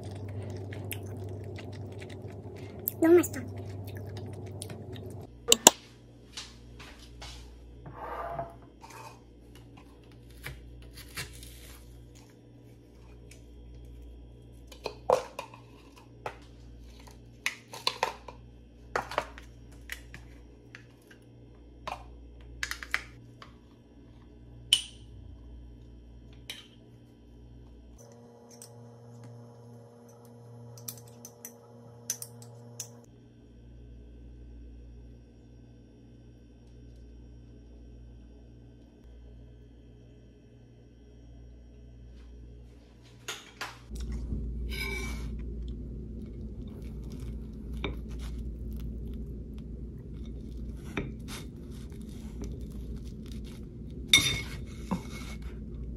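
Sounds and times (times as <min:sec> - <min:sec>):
steady low hum: 0:00.0 - 0:55.9.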